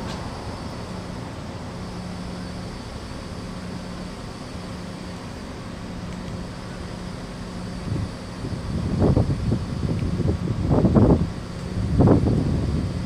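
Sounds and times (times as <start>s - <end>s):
faint hum: 0.0s - 13.0s
traffic rumble: 0.0s - 13.0s.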